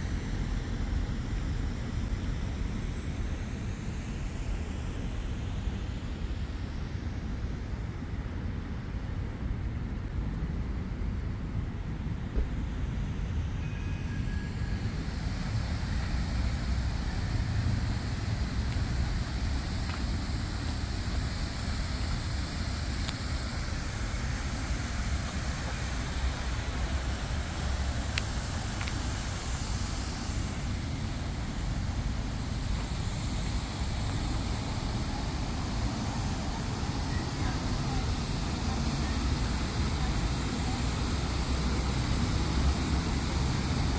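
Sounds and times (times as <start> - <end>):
fountain water hiss: 0.0 - 43.9
city traffic: 7.2 - 43.9.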